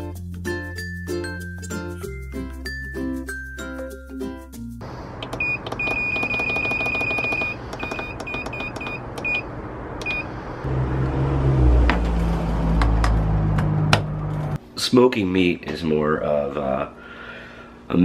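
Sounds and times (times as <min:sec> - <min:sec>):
background music: 0:00.0 - 0:04.8
control panel beeping: 0:05.2 - 0:10.3.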